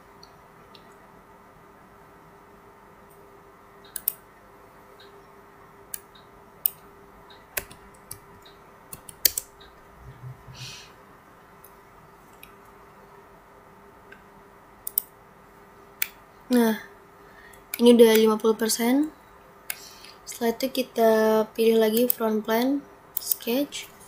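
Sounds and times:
faint steady hum: 0:00.0 - 0:24.0
mouse clicks: 0:03.8 - 0:04.2, 0:14.8 - 0:15.1.

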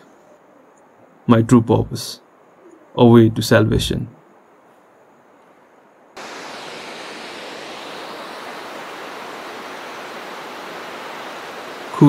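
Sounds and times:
fast-flowing river water: 0:06.2 - 0:12.0.

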